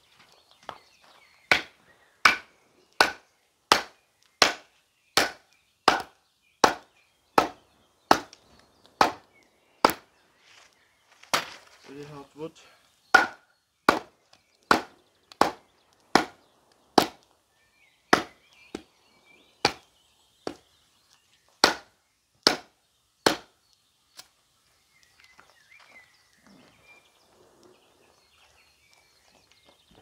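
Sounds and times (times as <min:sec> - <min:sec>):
knife striking hard wood: 0:01.5 - 0:08.4, 0:13.1 - 0:14.1, 0:16.2 - 0:16.4, 0:17.0 - 0:17.2, 0:18.1 - 0:18.8, 0:21.6 - 0:22.7.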